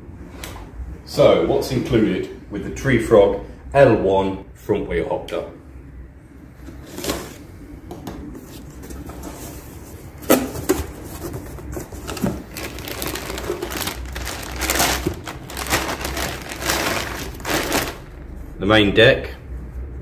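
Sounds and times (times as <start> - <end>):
plastic bag rustling: 10.8 - 18.2.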